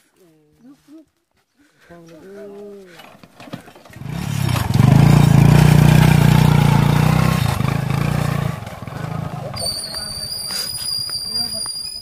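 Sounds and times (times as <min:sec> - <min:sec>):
small motorcycle engine running: 0:03.4 - 0:10.5.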